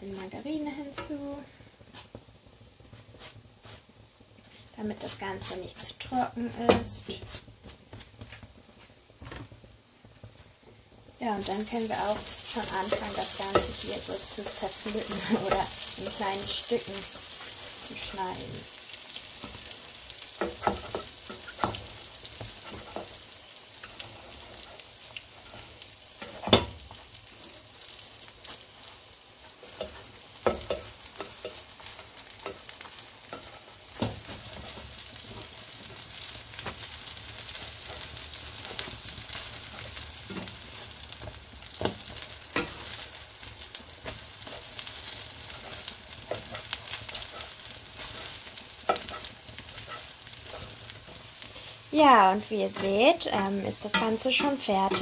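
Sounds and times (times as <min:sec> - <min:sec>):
batter sizzling in a frying pan: 0:00.0 - 0:55.0
spatula scraping and knocking pan: 0:11.3 - 0:55.0.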